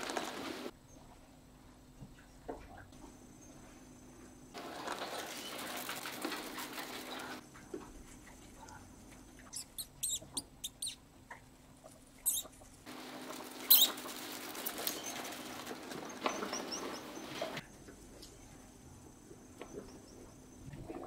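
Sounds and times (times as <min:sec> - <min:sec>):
rustling of hay bedding: 0:04.6 - 0:07.4, 0:12.9 - 0:17.6
faint chirps: 0:09.4 - 0:11.0, 0:12.2 - 0:12.5
mice squeaking: 0:09.4 - 0:11.0, 0:11.9 - 0:12.6, 0:13.6 - 0:17.6.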